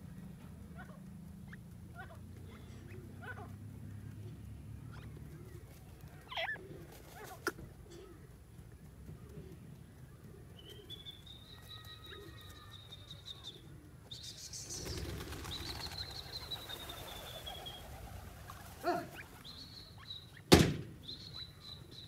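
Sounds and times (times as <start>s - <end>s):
birds rustling in dirt: 0.0s - 22.0s
sharp knock: 20.5s - 20.9s.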